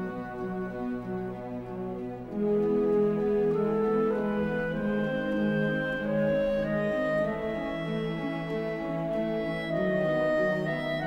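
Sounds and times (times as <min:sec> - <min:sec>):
slow orchestral music: 0:00.0 - 0:11.0.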